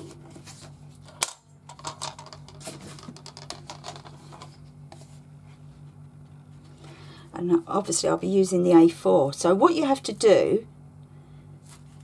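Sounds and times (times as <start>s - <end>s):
paper and plastic mat rustling: 0.0s - 6.0s.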